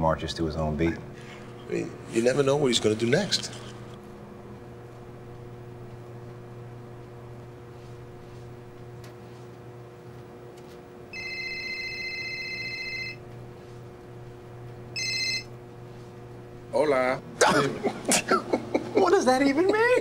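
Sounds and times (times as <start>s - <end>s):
steady low hum: 0.0s - 20.0s
electronic telephone ringing: 11.1s - 13.2s, 15.0s - 15.5s.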